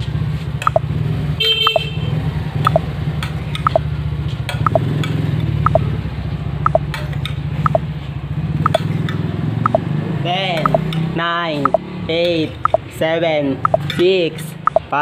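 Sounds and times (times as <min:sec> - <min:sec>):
timer ticking two-note blips: 0:00.6 - 0:00.9, 0:01.6 - 0:01.9, 0:02.6 - 0:02.9, 0:03.6 - 0:03.9, 0:04.6 - 0:04.9, 0:05.6 - 0:05.8, 0:06.6 - 0:06.8, 0:07.6 - 0:07.8, 0:09.6 - 0:09.8, 0:10.6 - 0:10.8, 0:12.6 - 0:12.8, 0:13.6 - 0:13.9, 0:14.6 - 0:14.9.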